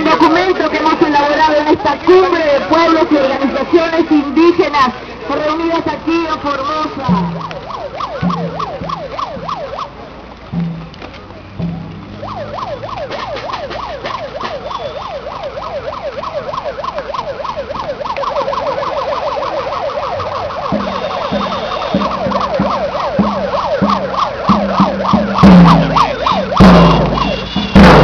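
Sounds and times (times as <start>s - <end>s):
siren yelping: 0.0s - 10.1s, 11.6s - 28.0s
steady drumbeats: 5.9s - 28.0s.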